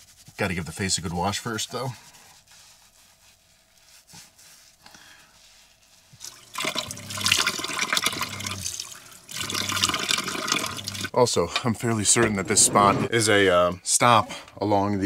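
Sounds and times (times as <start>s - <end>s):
faucet running into sink: 6.2s - 11.1s.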